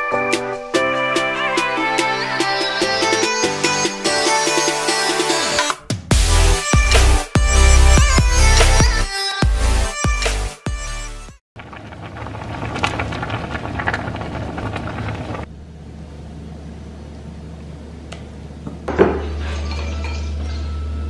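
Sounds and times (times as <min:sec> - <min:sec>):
soup bubbling at a boil: 0:11.6 - 0:15.5
utensils and bowls clinking: 0:19.2 - 0:20.9.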